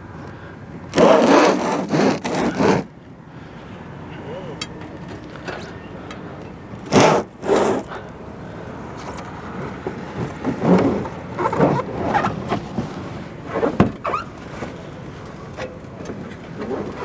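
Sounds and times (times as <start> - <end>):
heavy unit scraping on roof: 0.9 - 2.9, 6.8 - 8.1, 9.6 - 14.9.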